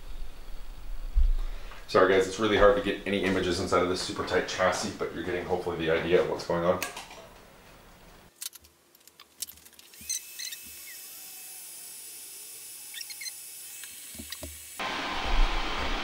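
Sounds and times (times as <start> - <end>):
clicks of wires being handled: 8.3 - 10.6
flux squeaks: 9.9 - 11.0, 12.9 - 13.4
soldering iron sizzling: 9.9 - 16.0.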